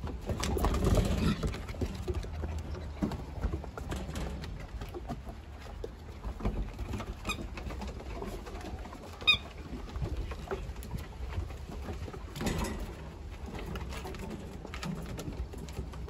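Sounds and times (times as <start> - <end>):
paws pattering on wooden boards: 0.0 - 16.0.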